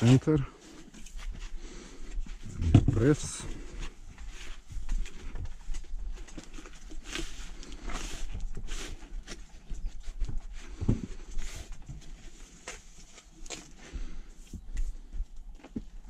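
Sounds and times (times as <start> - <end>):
dull thump: 2.5 - 3.2.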